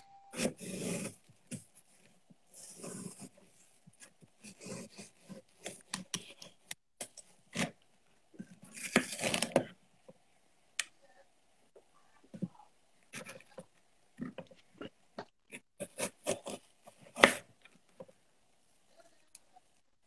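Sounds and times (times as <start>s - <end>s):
knife cutting apple: 0.3s - 1.7s, 8.4s - 9.8s, 15.5s - 17.6s.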